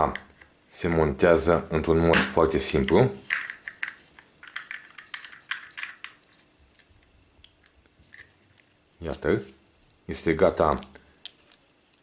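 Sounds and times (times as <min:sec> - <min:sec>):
plastic parts clicking and rubbing: 0:02.8 - 0:09.2.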